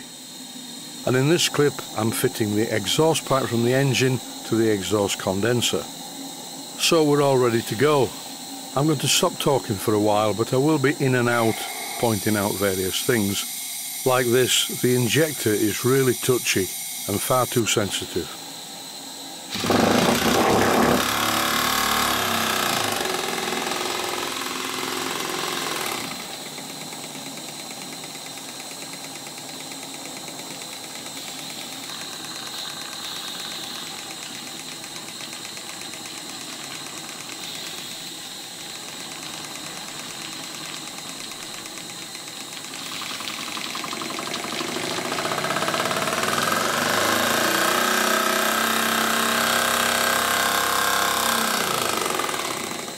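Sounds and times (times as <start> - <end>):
model steam engine running: 10.6 - 18.4, 19.5 - 52.9.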